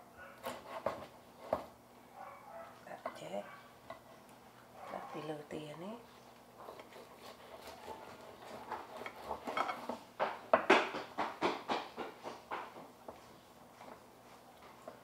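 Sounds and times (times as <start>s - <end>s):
knife crunching through roast duck: 6.5s - 10.0s.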